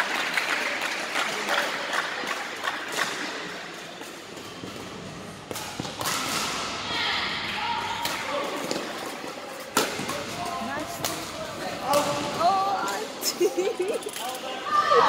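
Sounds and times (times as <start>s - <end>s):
rackets striking shuttlecock: 4.4s - 6.7s, 9.7s - 13.0s.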